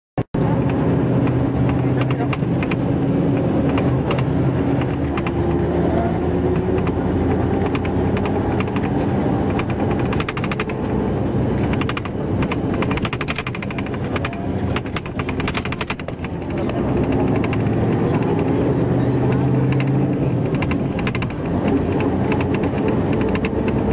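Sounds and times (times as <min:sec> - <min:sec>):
street traffic engine hum: 0:00.3 - 0:23.9
rapid sharp clicks: 0:06.5 - 0:18.5, 0:19.2 - 0:23.9.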